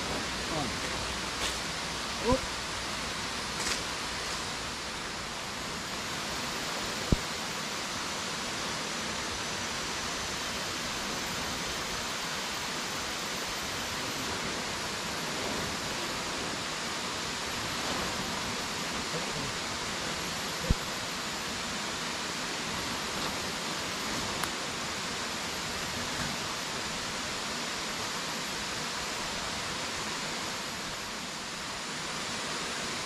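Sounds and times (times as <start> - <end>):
river water rushing: 0.0 - 33.0.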